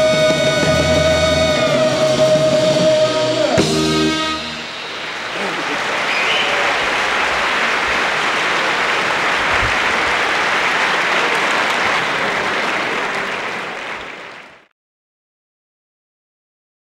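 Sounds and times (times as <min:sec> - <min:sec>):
audience applauding: 0:03.6 - 0:14.7.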